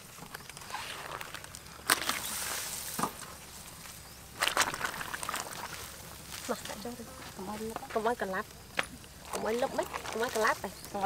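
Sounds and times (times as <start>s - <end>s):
water splashing and sloshing: 0.2s - 6.6s, 9.2s - 11.0s.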